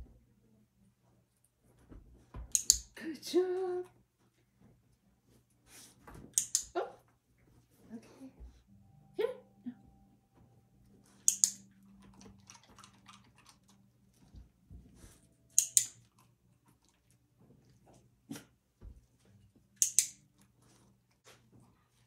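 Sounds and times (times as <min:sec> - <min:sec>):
dog chewing crunchy treats: 0:11.6 - 0:14.4.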